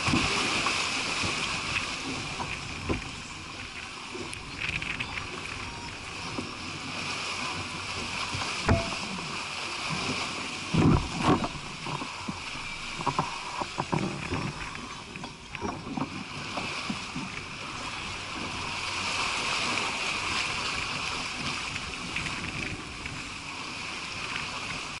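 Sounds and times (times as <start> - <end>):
water rushing along hull: 0.0 - 25.0
sharp knocks and thumps: 8.6 - 9.3.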